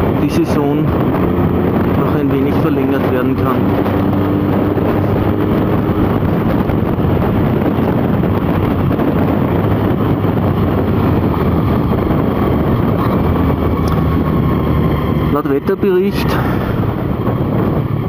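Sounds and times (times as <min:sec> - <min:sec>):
motorcycle engine running: 0:00.0 - 0:18.0
wind noise on microphone: 0:00.0 - 0:18.0.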